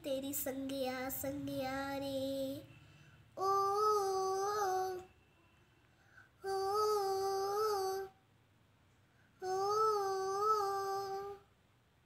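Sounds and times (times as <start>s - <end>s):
girl singing a held note: 3.4s - 5.2s, 6.4s - 8.2s, 9.4s - 11.5s.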